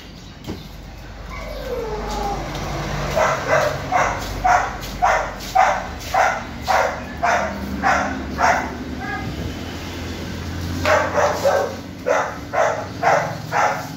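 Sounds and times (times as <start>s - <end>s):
dog barking: 3.1s - 8.8s, 10.8s - 13.9s.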